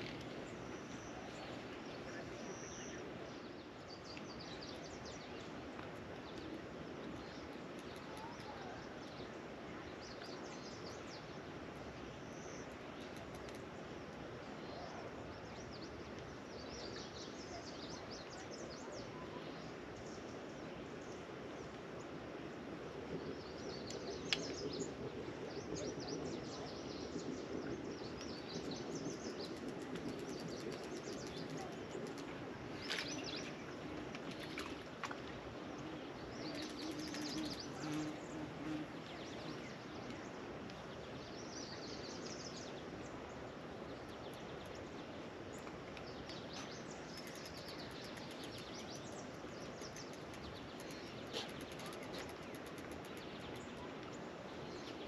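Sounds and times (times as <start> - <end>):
outdoor background hiss: 0.0 - 55.0
birds chirping: 23.6 - 35.2, 35.8 - 55.0.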